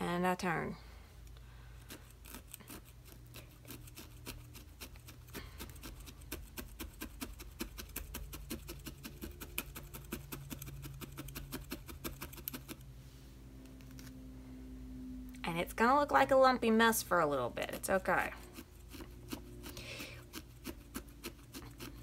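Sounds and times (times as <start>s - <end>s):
felting needle poking: 1.8s - 12.8s, 17.7s - 22.0s.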